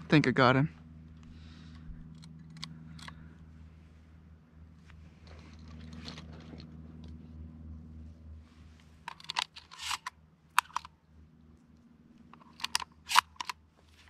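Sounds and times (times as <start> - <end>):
low steady hum: 0.0 - 14.0
handling clicks and rustles: 4.7 - 14.0.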